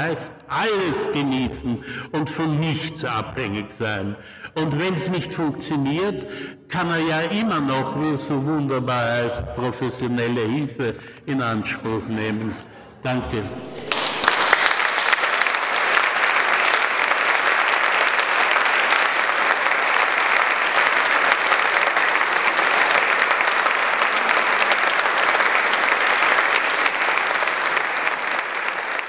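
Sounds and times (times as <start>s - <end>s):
audience applauding: 13.6s - 29.0s.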